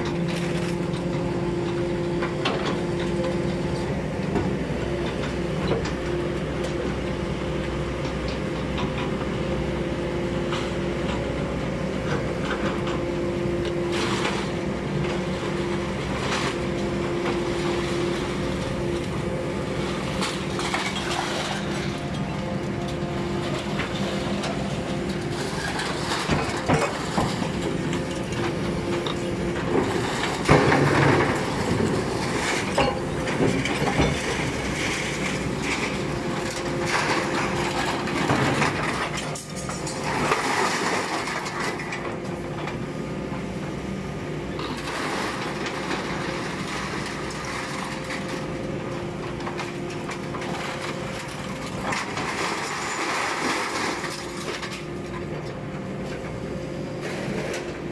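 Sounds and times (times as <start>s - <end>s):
machine hum: 0.0s - 57.9s
scrap metal clattering and scraping: 23.4s - 42.2s, 49.4s - 54.9s.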